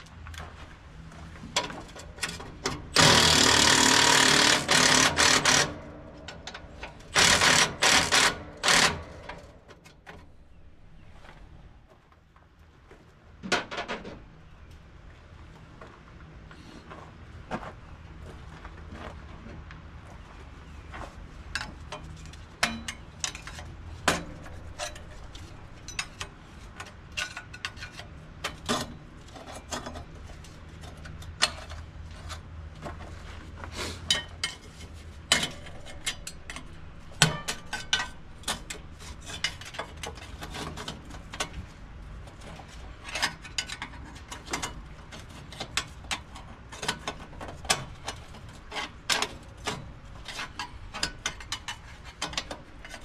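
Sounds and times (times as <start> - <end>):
ratchet wrench clicking: 7.1 - 9.0.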